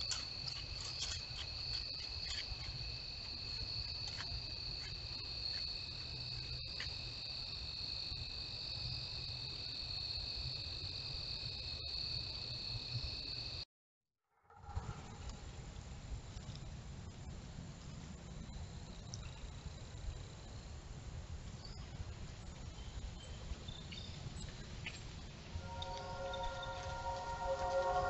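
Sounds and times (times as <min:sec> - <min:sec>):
crickets chirping: 0:00.0 - 0:13.6, 0:25.6 - 0:28.0.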